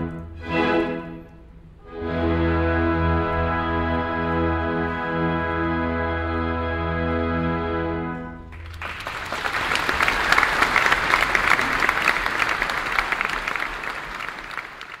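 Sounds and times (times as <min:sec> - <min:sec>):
orchestra sustained chord: 0:00.0 - 0:08.6
audience applause: 0:08.5 - 0:15.0.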